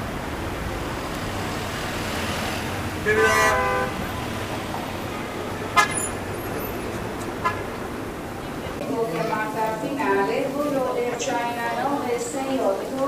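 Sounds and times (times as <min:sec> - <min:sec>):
street traffic noise: 0:00.0 - 0:13.0
car horn honking: 0:02.9 - 0:04.3, 0:05.1 - 0:06.8, 0:07.4 - 0:07.8.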